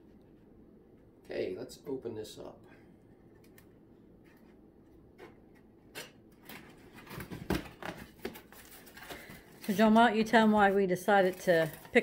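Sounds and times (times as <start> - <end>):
cardboard rustling and knocks: 6.4 - 8.8.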